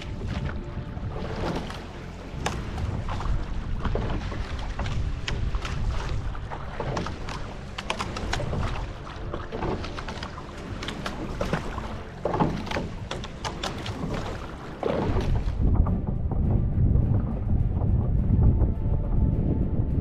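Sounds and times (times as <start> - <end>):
water splashing along boat hull: 0.0 - 16.0
wind buffeting microphone: 0.0 - 20.0.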